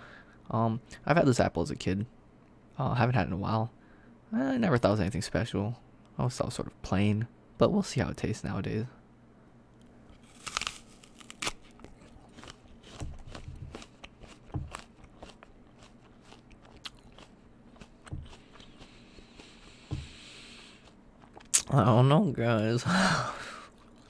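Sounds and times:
chewing with small crunches: 0:10.1 - 0:21.8, 0:23.6 - 0:24.0
crunchy apple bite: 0:10.1 - 0:21.8.

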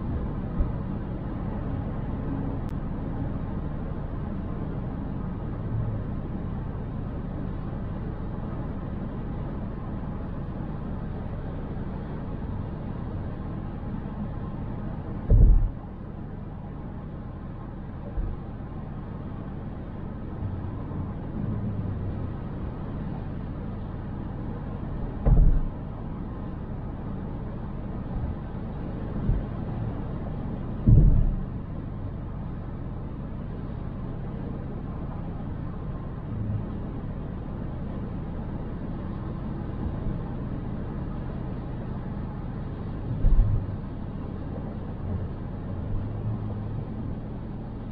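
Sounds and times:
road and engine rumble: 0:00.0 - 0:47.9
heavy low thumps: 0:15.3 - 0:15.8, 0:25.2 - 0:25.8, 0:30.8 - 0:31.5, 0:43.2 - 0:43.7.

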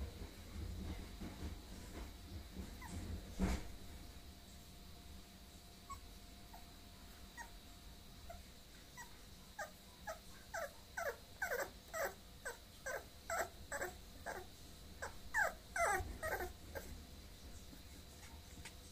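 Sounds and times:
puppy whimpering: 0:05.9 - 0:06.7, 0:07.3 - 0:07.6, 0:08.2 - 0:17.0.

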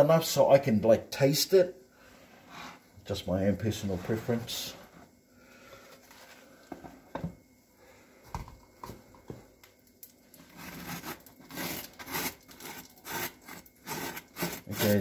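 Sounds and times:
knife scraping butter on toast: 0:10.5 - 0:15.0.

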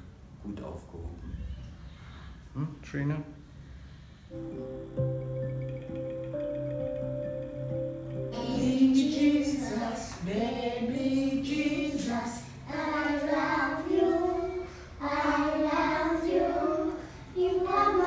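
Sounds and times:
young children singing: 0:08.3 - 0:18.0.

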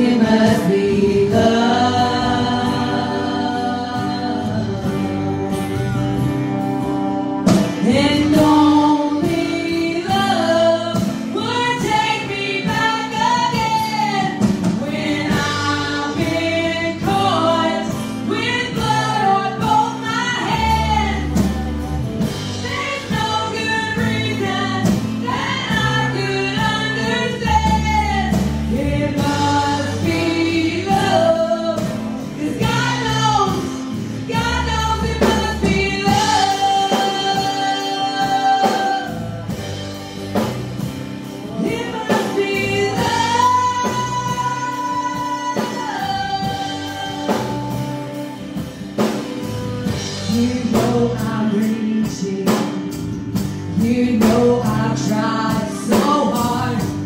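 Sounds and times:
choir of voices singing: 0:00.0 - 0:05.5, 0:07.8 - 0:39.6, 0:53.8 - 0:57.0
keyboard and band accompaniment: 0:00.0 - 0:57.0.

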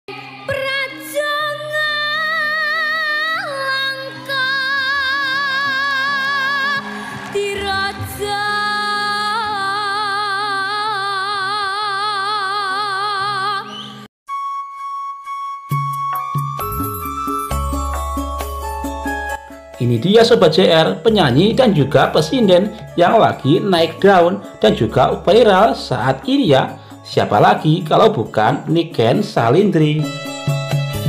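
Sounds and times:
girl singing with vibrato: 0:00.1 - 0:14.0
musical backing: 0:00.1 - 0:31.0.

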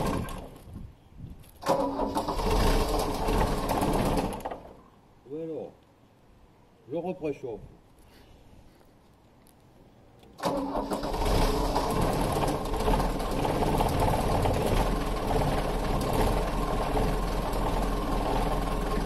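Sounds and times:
diesel engine starting and idling: 0:01.6 - 0:04.8, 0:10.4 - 0:19.0.

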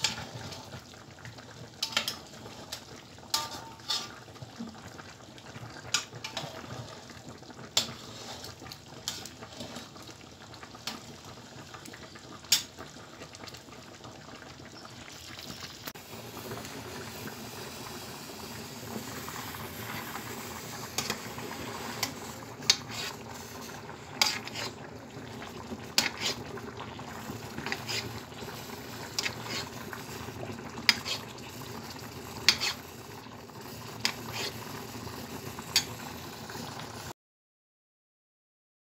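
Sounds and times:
syrup bubbling and sizzling in pan: 0:00.0 - 0:37.1
metal spoon clinking on pans: 0:01.8 - 0:02.2, 0:03.3 - 0:04.1.

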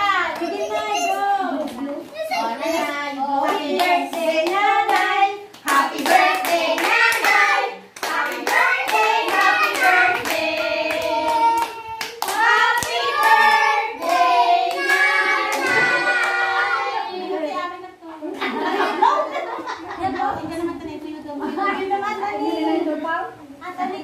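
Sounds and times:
group of people singing: 0:01.4 - 0:17.5
hands clapping in rhythm: 0:03.4 - 0:16.4.

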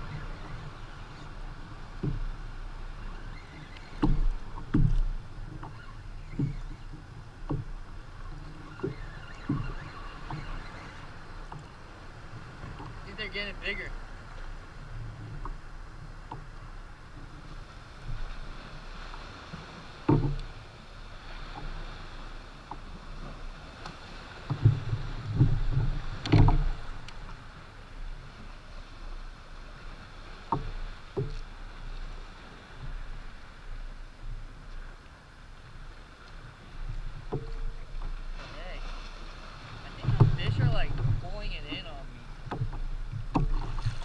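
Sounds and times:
knocks and thumps on boat: 0:00.0 - 0:44.0
water lapping against kayak hull: 0:00.0 - 0:44.0
wind on microphone: 0:31.9 - 0:44.0.

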